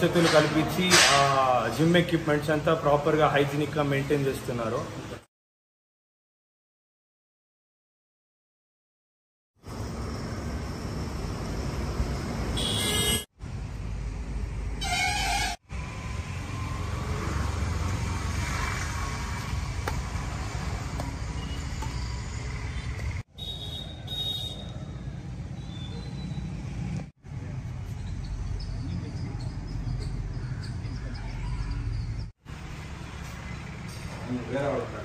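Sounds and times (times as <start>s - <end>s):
outdoor traffic noise: 0.0s - 5.3s, 9.6s - 35.0s
vehicle horn toots: 12.6s - 13.3s, 14.8s - 15.6s, 23.3s - 24.7s.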